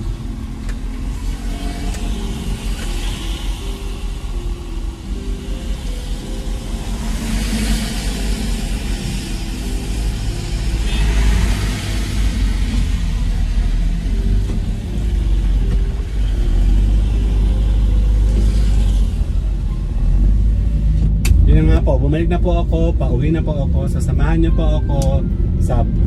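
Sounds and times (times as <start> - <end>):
road hiss: 0.0 - 19.6
car engine and road rumble: 0.0 - 26.0.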